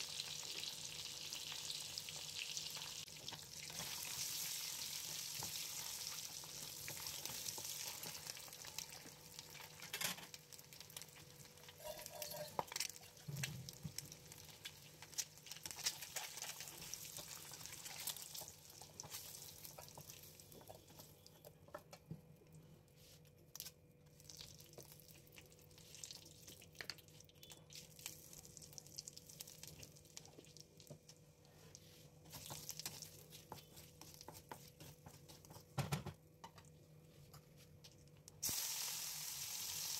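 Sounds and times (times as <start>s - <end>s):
hot oil sizzling: 0.0s - 20.7s, 38.3s - 39.9s.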